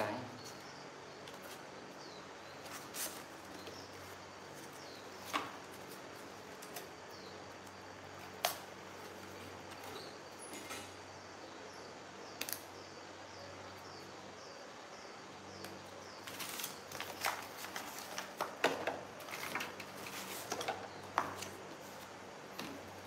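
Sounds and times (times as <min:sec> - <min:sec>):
cardboard being handled: 0:02.5 - 0:07.0, 0:16.2 - 0:23.0.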